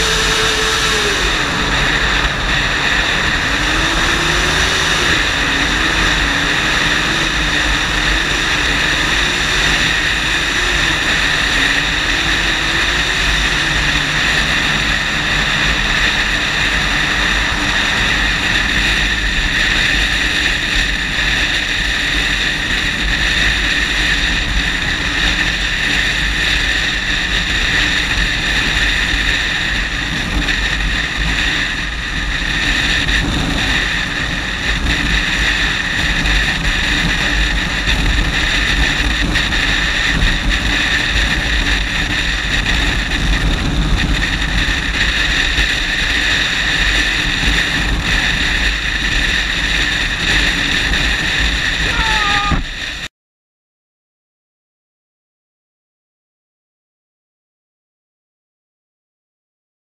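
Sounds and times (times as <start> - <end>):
motorcycle engine droning: 0.0 - 53.1
wind rushing over microphone: 0.0 - 53.1.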